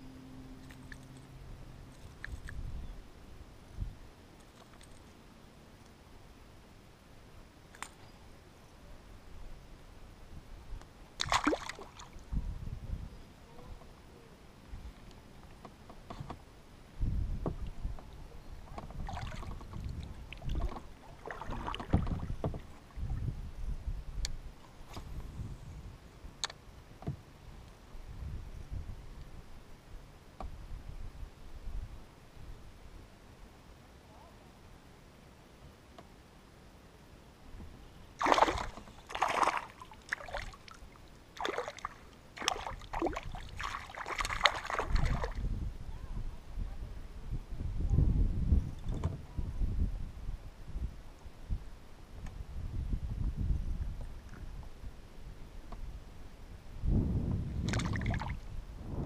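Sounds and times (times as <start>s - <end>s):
paddle splashing through water: 11.2s - 12.2s, 18.7s - 23.1s, 38.2s - 45.4s, 57.6s - 58.4s.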